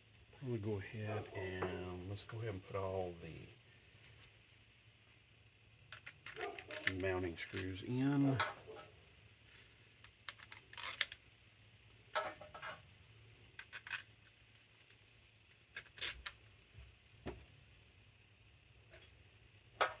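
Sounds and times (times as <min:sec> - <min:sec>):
screwdriver clinking on metal: 0:05.9 - 0:07.8.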